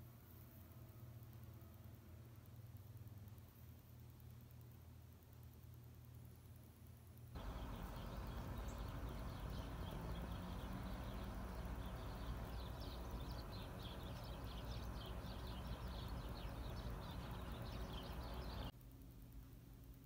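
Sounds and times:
low outdoor rumble: 0:00.1 - 0:20.0
small birds chirping: 0:07.3 - 0:18.8.

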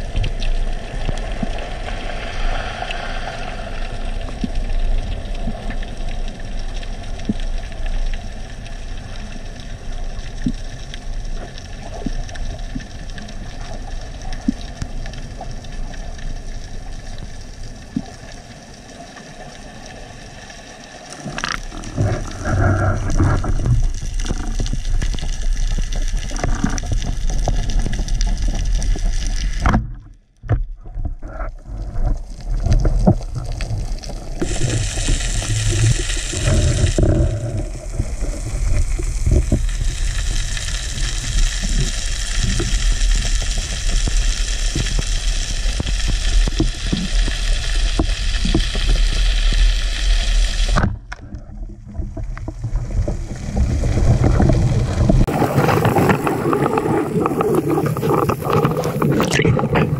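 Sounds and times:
underwater hiss and rumble: 0:00.0 - 0:59.9.

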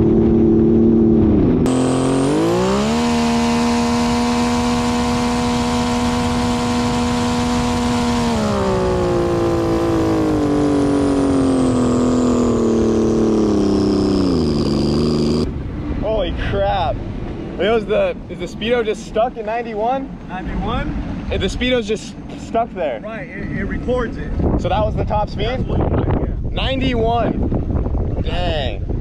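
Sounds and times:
jet ski engine at full throttle: 0:00.0 - 0:15.5
high turbo whine: 0:00.0 - 0:19.6.

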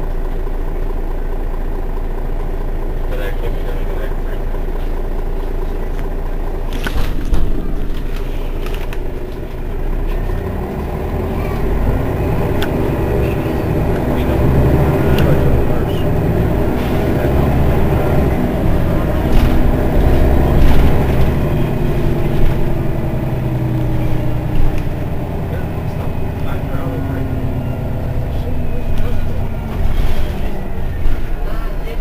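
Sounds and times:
bus engine idling: 0:00.0 - 0:32.0.

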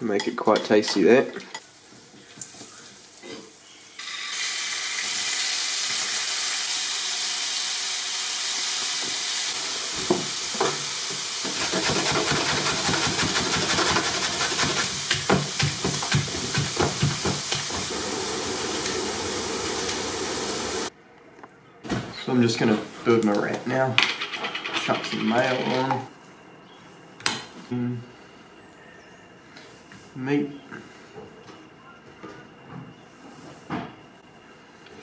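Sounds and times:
meat sizzling: 0:03.9 - 0:20.9.

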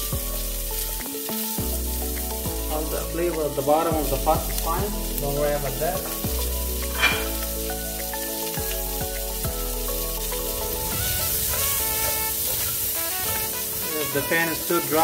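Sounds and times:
background music with bass line: 0:00.0 - 0:15.0
onions sizzling in a pan: 0:00.0 - 0:15.0
spoon stirring in a pan: 0:06.1 - 0:08.8.

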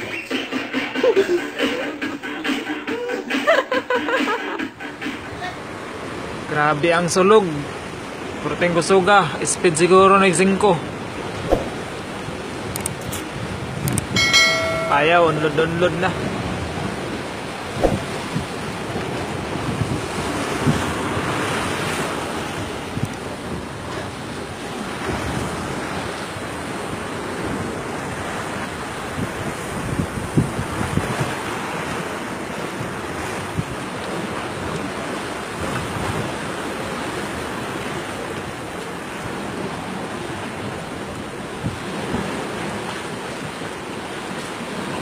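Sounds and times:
rough sea against boat: 0:00.0 - 0:45.0
wind buffeting microphone: 0:10.8 - 0:45.0
short thumps: 0:11.5 - 0:11.8, 0:17.8 - 0:18.1.

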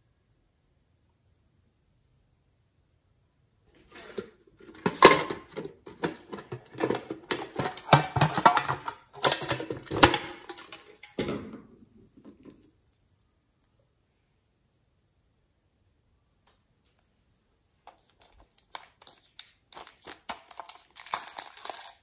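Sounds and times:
tin case clicking and rattling: 0:03.9 - 0:11.2, 0:19.8 - 0:22.0.

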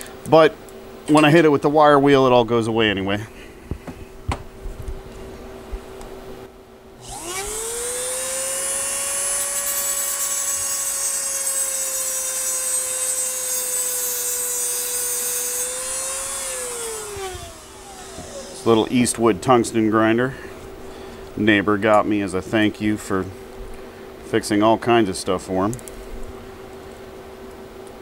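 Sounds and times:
rotary grinder high whine: 0:07.0 - 0:19.2.

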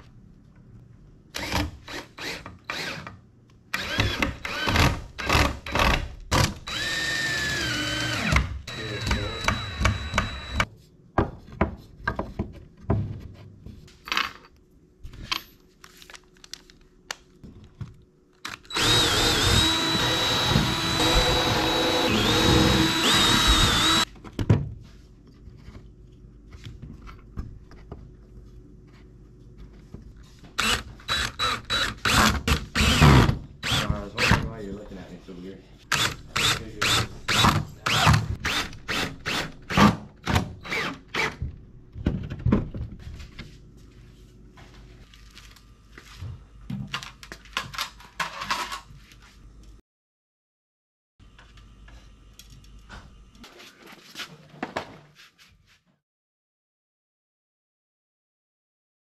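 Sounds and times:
cordless drill driving screws: 0:03.8 - 0:06.0, 0:06.6 - 0:10.6, 0:18.7 - 0:24.0, 0:30.6 - 0:33.9
knocks of handling wood: 0:11.2 - 0:14.0.

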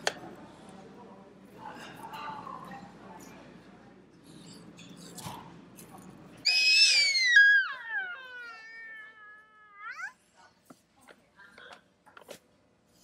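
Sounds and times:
toddler squealing: 0:06.5 - 0:10.2.

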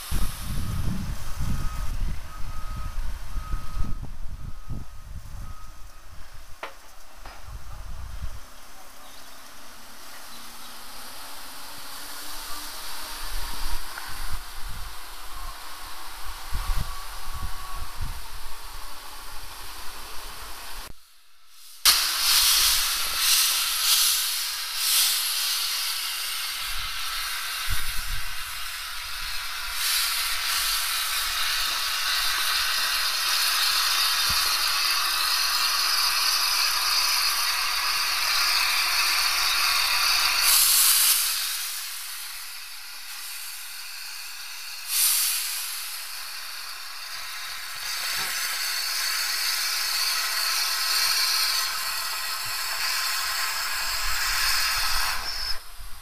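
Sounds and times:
steam locomotive hissing: 0:00.0 - 0:56.0.

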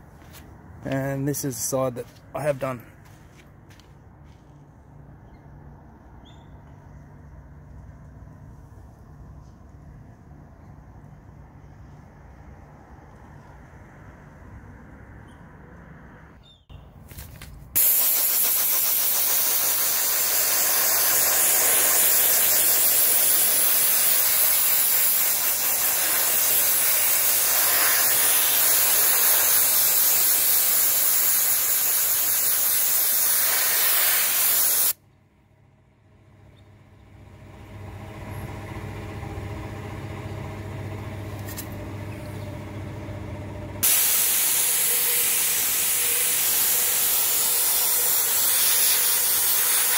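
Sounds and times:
air compressor motor hum: 0:17.8 - 0:35.0, 0:37.7 - 0:49.9
soda blaster hissing: 0:17.8 - 0:35.0, 0:43.8 - 0:49.9.

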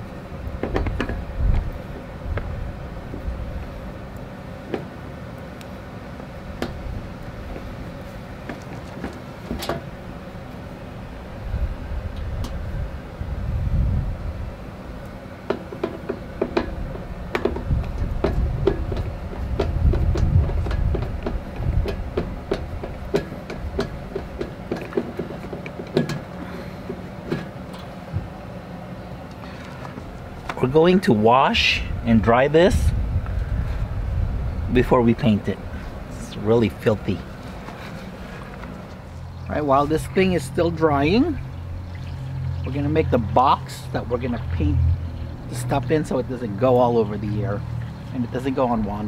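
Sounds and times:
steady low rumble: 0:09.9 - 0:15.0, 0:16.2 - 0:24.8, 0:29.9 - 0:49.0.

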